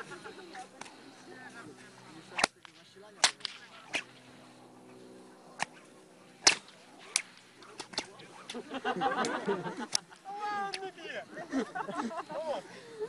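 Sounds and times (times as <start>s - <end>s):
whips cracking: 2.3s - 4.4s, 5.5s - 10.9s.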